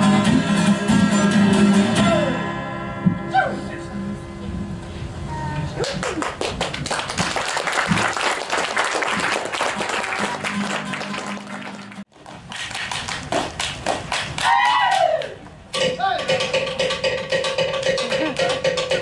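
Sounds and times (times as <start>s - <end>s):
strummed guitar music: 0.0s - 4.4s
people clapping and applauding: 5.8s - 15.3s, 17.8s - 19.0s
sharp hand claps: 5.8s - 15.4s.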